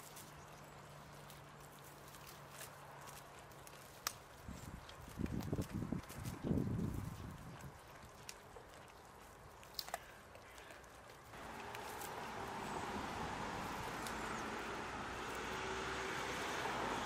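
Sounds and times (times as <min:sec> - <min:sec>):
outdoor rushing noise: 0:11.4 - 0:17.0.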